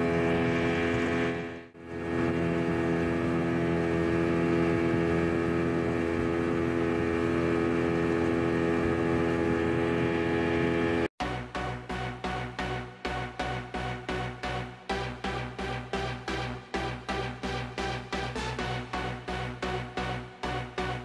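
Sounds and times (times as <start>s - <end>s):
outboard motor running: 0.0s - 21.0s
electronic dance music: 11.2s - 21.0s.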